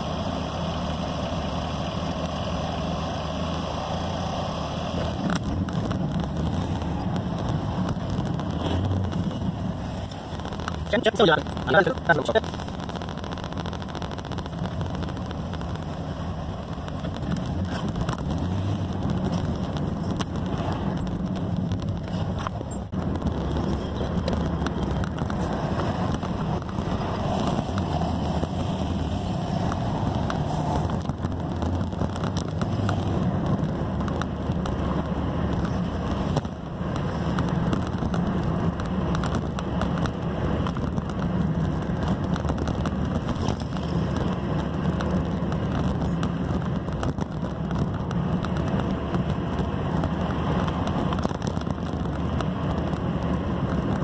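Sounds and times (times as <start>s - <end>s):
car engine and road noise: 0.0s - 54.0s.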